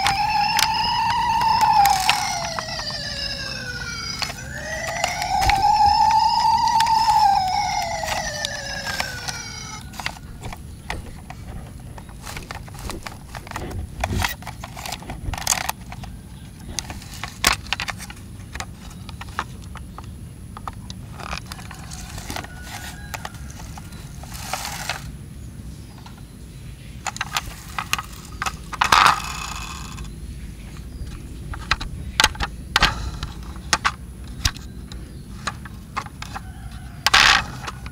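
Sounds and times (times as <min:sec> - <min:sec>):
toy siren sliding down: 0:00.0 - 0:15.7, 0:21.2 - 0:25.2, 0:27.1 - 0:30.1, 0:35.4 - 0:37.9.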